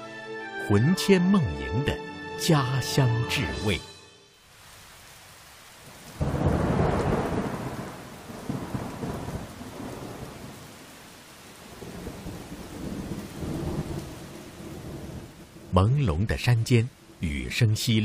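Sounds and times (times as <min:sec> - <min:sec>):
steady rain: 0:04.4 - 0:18.0
thunder clap and rumble: 0:06.2 - 0:10.8, 0:11.6 - 0:15.7.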